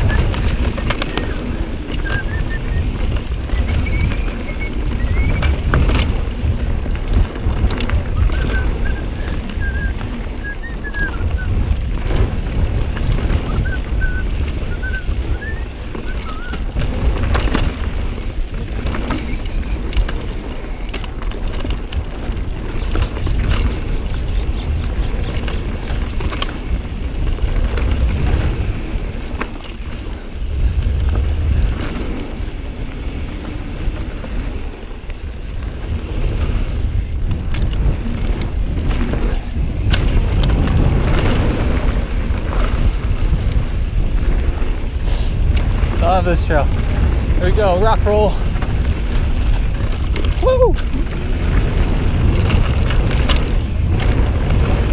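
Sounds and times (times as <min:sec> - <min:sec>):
bike rattling over rocks: 0:00.0 - 0:54.9
tyre noise: 0:00.0 - 0:54.9
wind rumble on microphone: 0:00.0 - 0:54.9.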